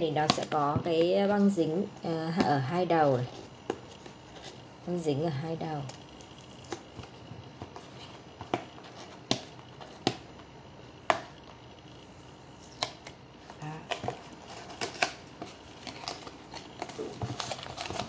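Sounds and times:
paperboard clicks and crackles: 12.8s - 18.0s.

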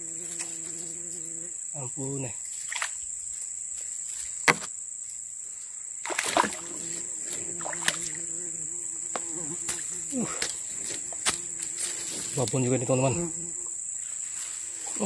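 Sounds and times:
insects droning: 0.0s - 15.0s
knocks: 4.5s - 4.7s
water splashes: 6.0s - 8.2s.

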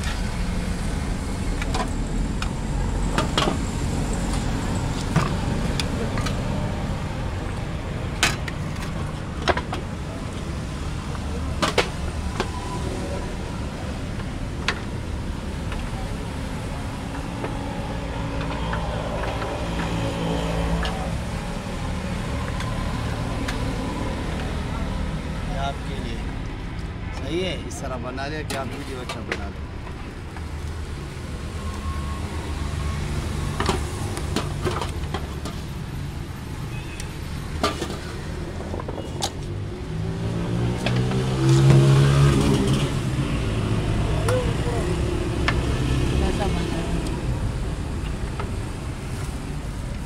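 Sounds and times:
passing traffic rumble: 0.0s - 50.0s.

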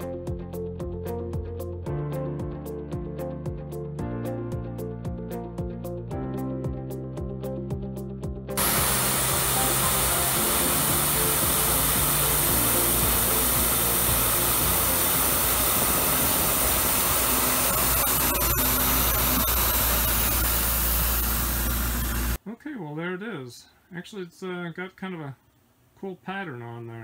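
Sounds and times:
background music: 0.0s - 20.3s
mill cutting aluminium: 8.6s - 22.4s.

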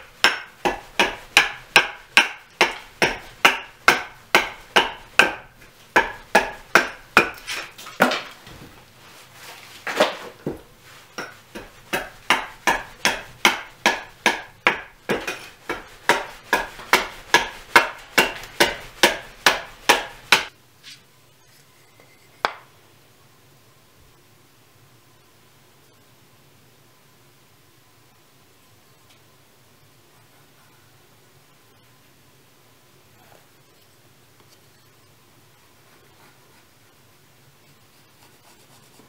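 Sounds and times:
axe chopping log: 0.2s - 8.3s, 11.2s - 20.5s.

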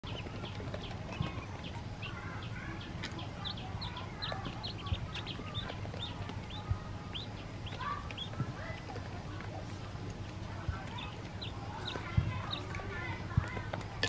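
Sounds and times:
ducklings peeping: 0.0s - 14.0s.

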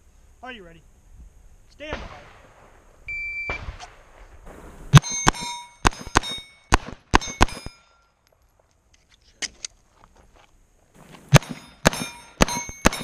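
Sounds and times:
rapid pistol shots: 3.5s - 7.8s, 11.3s - 13.0s
steel plate clanging: 5.0s - 8.0s, 11.3s - 13.0s.

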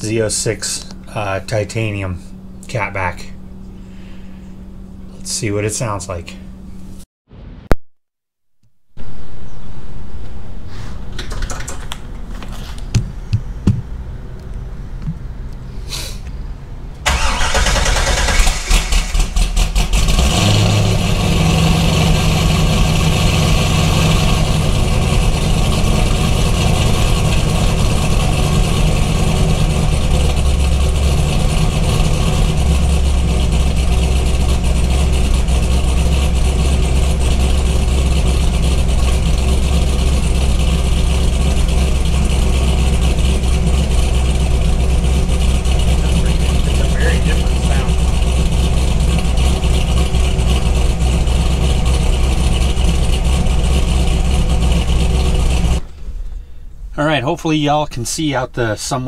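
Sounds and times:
car engine idling: 0.0s - 6.8s, 16.5s - 57.4s
starter cranking: 17.1s - 20.1s.

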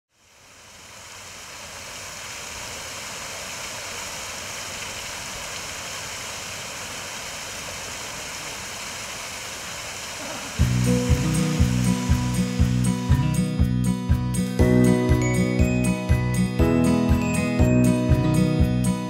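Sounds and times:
waterfall splashing over stone: 0.2s - 13.2s.

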